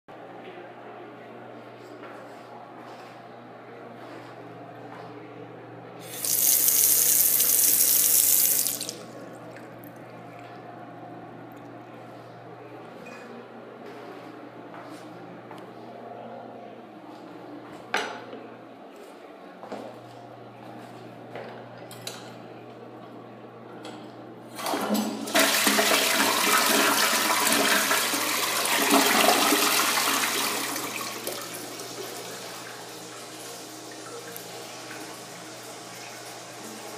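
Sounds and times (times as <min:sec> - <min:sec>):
toilet tank refilling hiss: 0:06.0 - 0:09.0, 0:24.6 - 0:36.9
toilet flushing: 0:06.0 - 0:09.2, 0:24.6 - 0:36.9
faucet water splashing into sink: 0:06.1 - 0:09.1.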